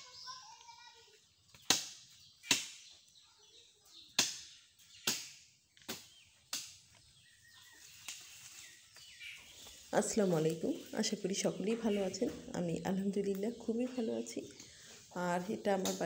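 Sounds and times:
blade chopping branches: 1.5 - 2.9, 4.1 - 7.0.

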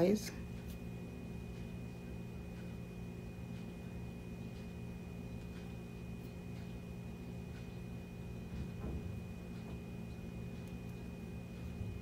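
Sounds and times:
soft ticks of dough handling: 0.4 - 8.7.

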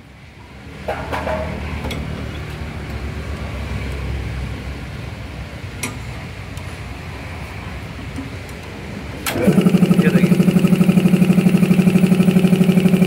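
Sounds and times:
air compressor running: 9.3 - 13.0.

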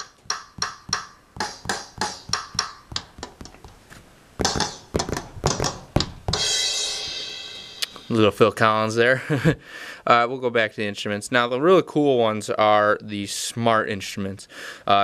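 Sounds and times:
electronic drum hits: 0.0 - 3.0, 4.4 - 8.3
cymbal crash: 6.3 - 8.4.

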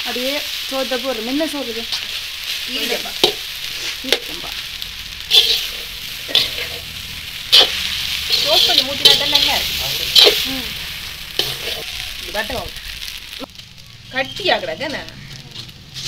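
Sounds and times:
frying sizzle: 0.0 - 16.0
metal ladle scraping metal pan: 1.9 - 13.2.

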